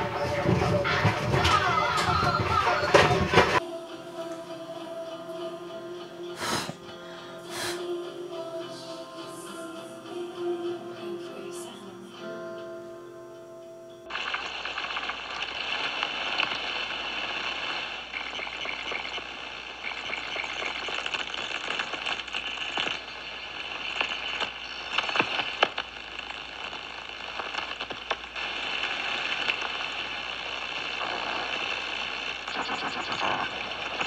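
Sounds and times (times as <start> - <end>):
background music: 0.0 - 14.2
plastic crackling and sizzling: 14.1 - 34.0.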